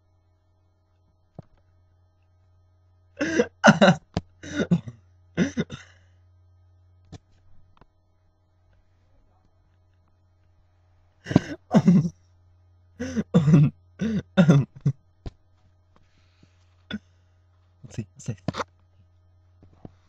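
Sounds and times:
low electrical hum: 0.0 - 20.0
person's voice in short bursts: 17.8 - 18.6.

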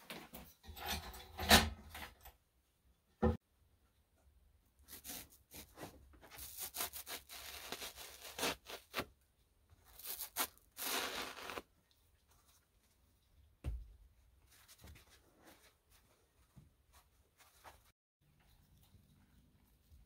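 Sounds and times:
knife sawing and scraping: 4.9 - 9.0.

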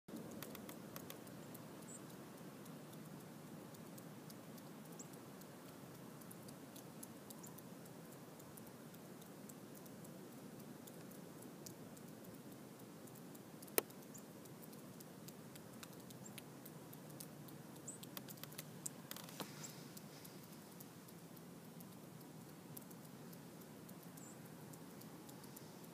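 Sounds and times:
faint background hiss: 0.1 - 25.9
small clicks and ticks: 0.1 - 25.9
brief rustle: 18.2 - 20.8.

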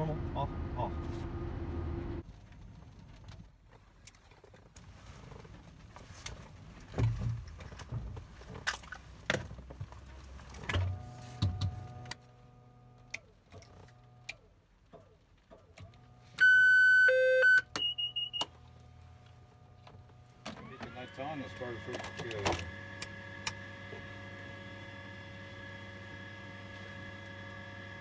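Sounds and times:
high beeps: 16.4 - 18.5.

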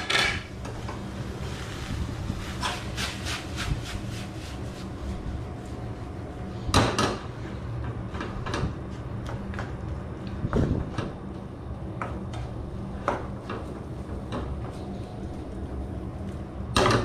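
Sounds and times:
low hum: 0.0 - 16.8
wooden spatula scraping a wok: 0.8 - 5.3.

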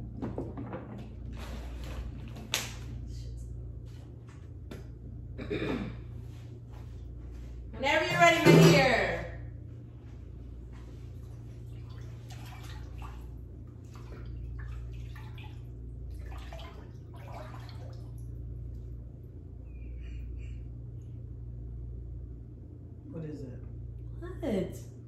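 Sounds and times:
steady low hum: 0.0 - 25.0
water sloshing in a tank: 6.2 - 22.6.

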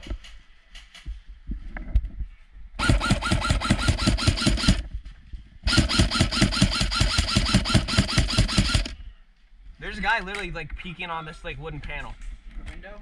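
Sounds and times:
airsoft rifle automatic bursts: 2.8 - 4.8, 5.7 - 9.0.

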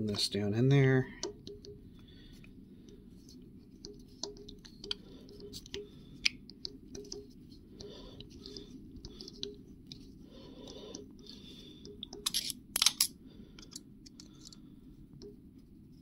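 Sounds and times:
steady low hum: 0.0 - 16.0
hand tap clicking and scratching: 3.8 - 10.0.

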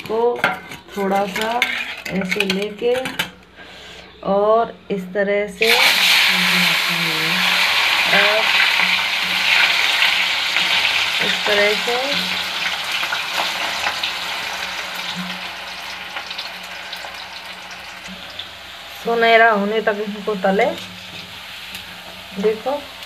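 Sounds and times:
fries sizzling in hot oil: 5.6 - 23.0.

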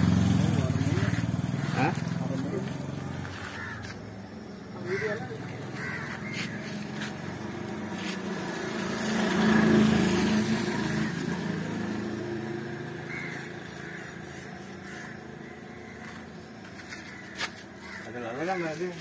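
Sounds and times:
small vehicle engine passing: 0.0 - 3.8, 4.9 - 15.6.

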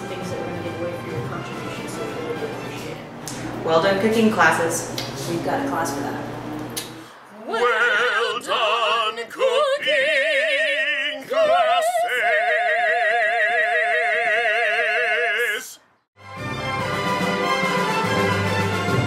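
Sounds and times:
man and woman singing operatically: 7.3 - 15.8.

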